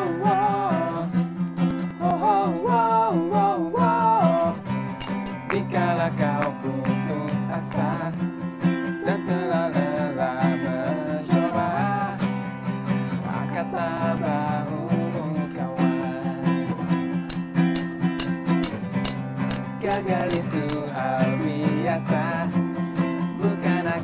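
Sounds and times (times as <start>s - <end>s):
wordless vocal melody: 0.0s - 18.2s, 19.6s - 24.0s
acoustic guitar strumming: 0.0s - 24.0s
sharp rhythmic hits: 4.7s - 5.8s, 17.3s - 21.0s.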